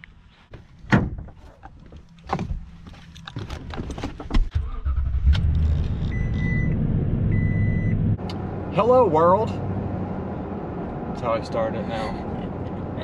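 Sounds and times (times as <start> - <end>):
car engine starting and idling: 4.5 - 12.8.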